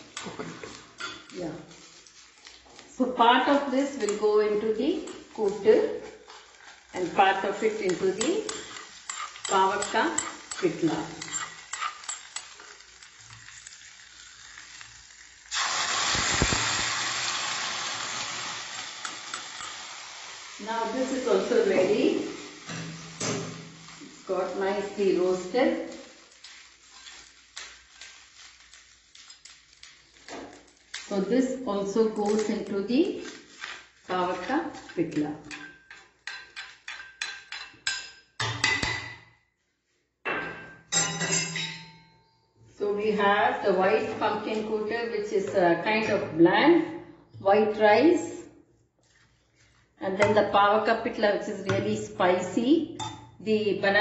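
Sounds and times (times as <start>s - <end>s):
hot oil sizzling in stew: 0.0s - 39.4s
spoon clinking on metal ladle: 40.9s - 42.1s.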